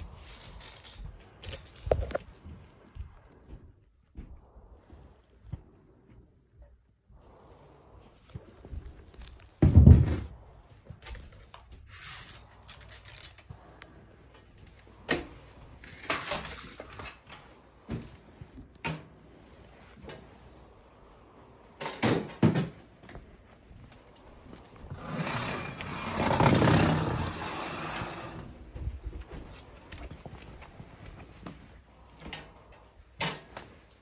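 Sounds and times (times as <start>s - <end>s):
rustling: 0.0s - 34.0s
objects knocking and scraping: 24.9s - 28.4s.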